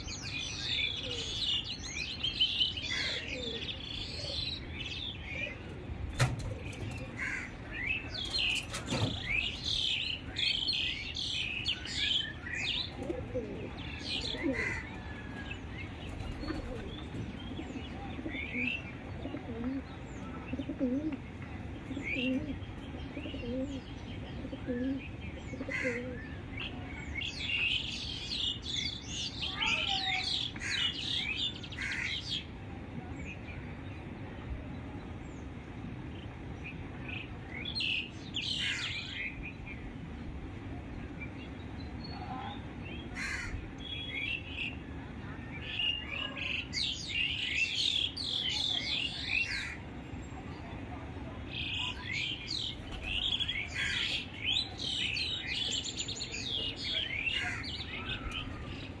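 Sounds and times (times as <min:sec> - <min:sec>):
low repeated bird calls: 0:00.0 - 0:32.5
birds chirping: 0:00.0 - 0:59.0.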